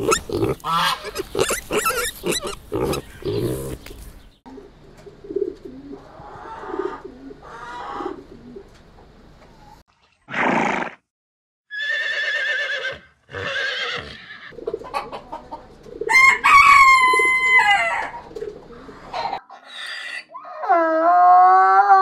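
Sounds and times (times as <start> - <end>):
horse calling: 0.0 - 3.8, 11.7 - 14.6
horse snorting: 0.0 - 3.8
rooster crowing: 16.1 - 18.2.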